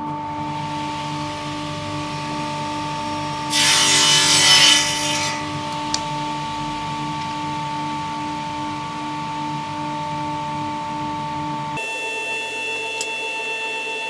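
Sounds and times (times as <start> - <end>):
miter saw cutting plywood: 3.4 - 5.7.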